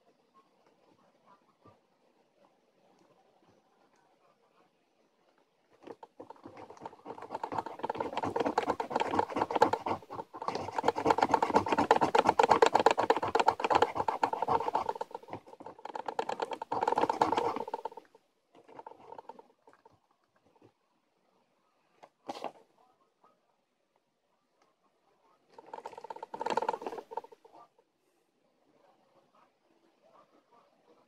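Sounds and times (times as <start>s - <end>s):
scratching lottery ticket coating: 5.9s - 18.1s, 25.6s - 27.4s.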